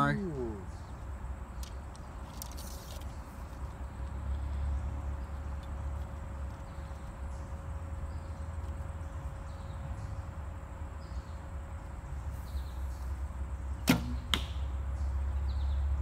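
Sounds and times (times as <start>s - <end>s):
steady low hum: 0.0s - 16.0s
bow string snap: 13.8s - 14.8s.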